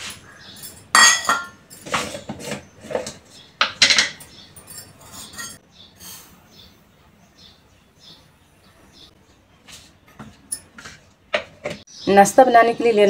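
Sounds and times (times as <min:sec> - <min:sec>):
metal kitchen utensils clinking: 0:00.0 - 0:05.6, 0:10.1 - 0:11.8.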